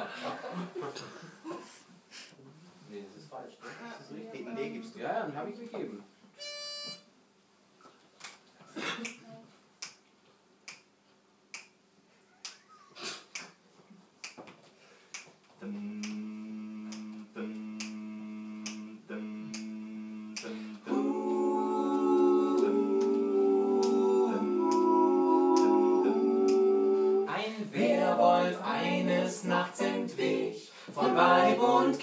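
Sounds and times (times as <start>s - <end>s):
finger snaps: 9.8s - 10.0s, 10.7s - 10.9s, 11.5s - 11.8s, 13.3s - 13.6s, 14.2s - 14.4s, 16.0s - 16.2s, 16.9s - 17.2s, 17.8s - 18.0s, 18.6s - 18.9s, 19.5s - 19.7s
voices singing sustained chord: 15.8s - 32.0s.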